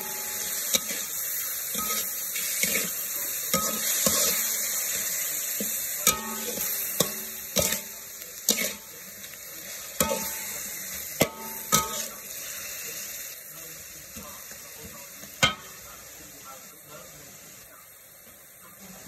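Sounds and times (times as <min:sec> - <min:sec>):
metal spatula scraping wok: 0:00.0 - 0:08.9, 0:09.6 - 0:12.6
spatula clacking on wok: 0:00.0 - 0:08.9, 0:09.8 - 0:12.3, 0:14.2 - 0:15.8
meat sizzling in a wok: 0:00.0 - 0:19.0.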